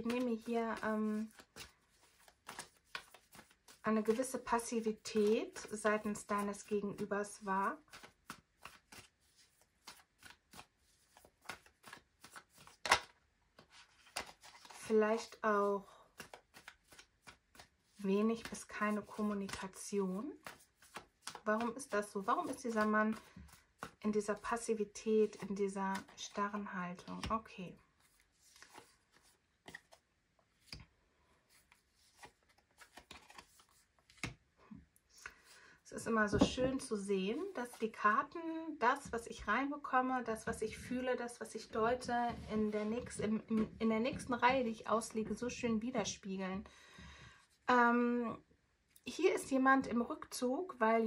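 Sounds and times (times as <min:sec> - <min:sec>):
cards being shuffled: 0:00.0 - 0:15.4, 0:16.1 - 0:27.4, 0:28.0 - 0:30.9, 0:31.5 - 0:34.4.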